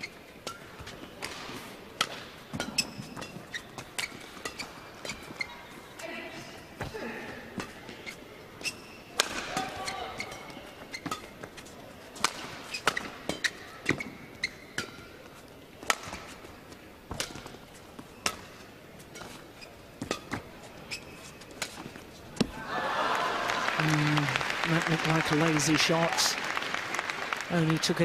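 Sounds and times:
shoes squeaking on court: 0.0s - 22.6s
racket striking shuttlecock: 8.8s - 11.5s, 12.2s - 15.1s, 15.8s - 16.3s, 18.2s - 18.6s.

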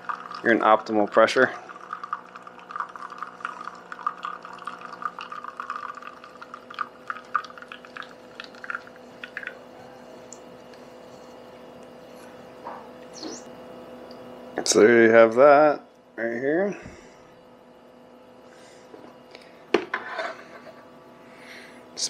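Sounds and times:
espresso pouring and dripping: 0.0s - 13.2s
espresso machine hum: 0.0s - 22.0s.

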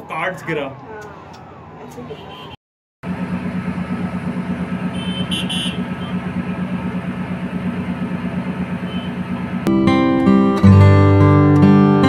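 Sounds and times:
vehicle engine running: 3.0s - 9.7s.

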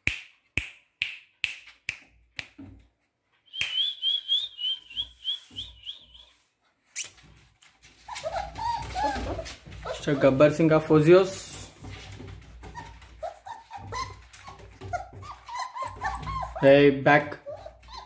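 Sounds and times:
finger snaps: 0.0s - 2.6s, 3.5s - 4.0s.

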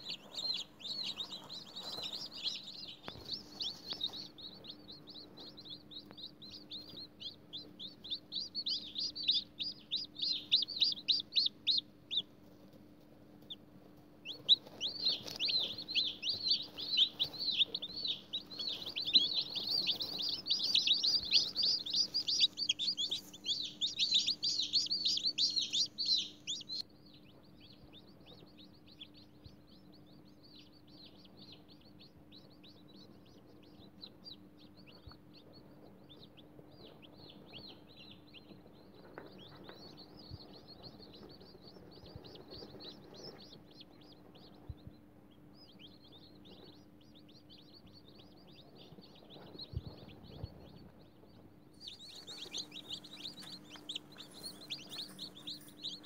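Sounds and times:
chicks peeping: 0.0s - 56.0s.

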